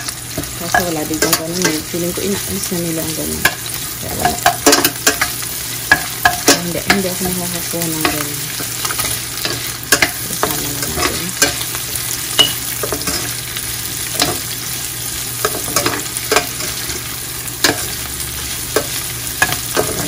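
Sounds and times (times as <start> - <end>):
food sizzling in a frying pan: 0.0 - 20.0
metal spoon scraping a pan: 3.4 - 13.4, 15.4 - 20.0.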